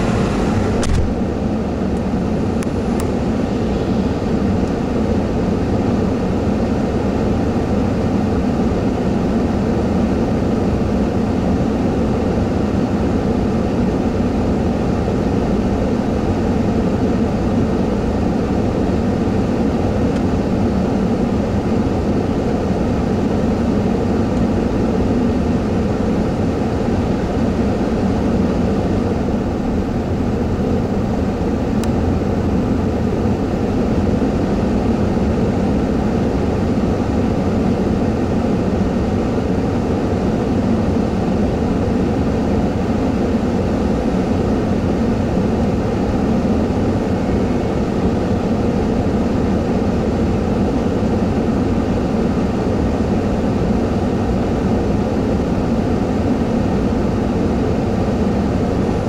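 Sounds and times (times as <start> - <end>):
vehicle idling rumble: 0.0 - 4.7.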